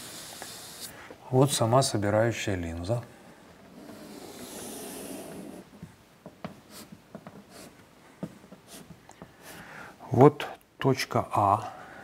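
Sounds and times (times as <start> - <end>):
chalk scraping on blackboard: 3.8 - 5.7, 6.6 - 7.8, 8.6 - 8.9.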